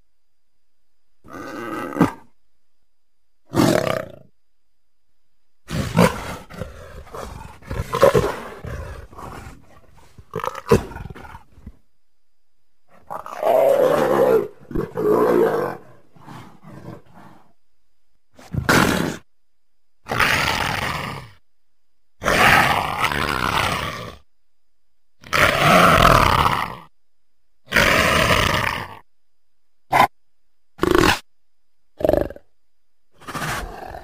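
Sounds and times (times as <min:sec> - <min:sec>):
leopard calling: 0:05.7 - 0:11.8, 0:13.0 - 0:17.5, 0:33.2 - 0:34.0.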